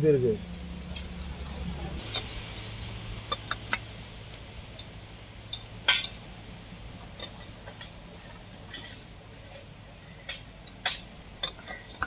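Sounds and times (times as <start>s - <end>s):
metal cylinder liners clinking: 2.0s - 9.1s, 10.2s - 12.0s.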